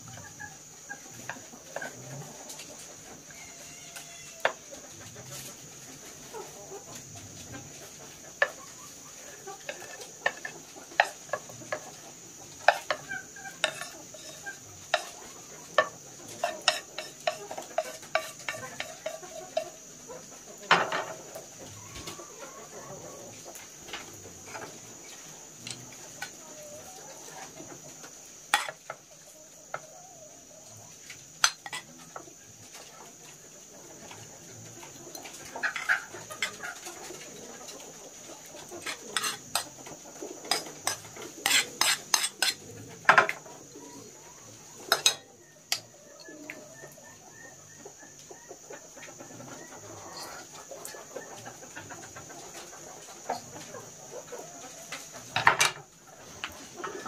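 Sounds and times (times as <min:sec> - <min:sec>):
chickens clucking: 0:00.0 - 0:57.0
steady high hiss: 0:00.0 - 0:57.0.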